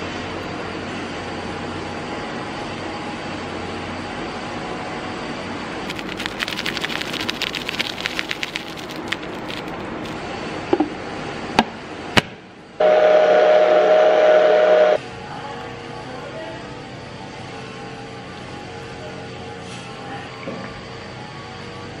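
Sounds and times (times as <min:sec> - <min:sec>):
sharp clicks: 0:05.9 - 0:10.2
spice powder shaken from container: 0:05.9 - 0:10.2.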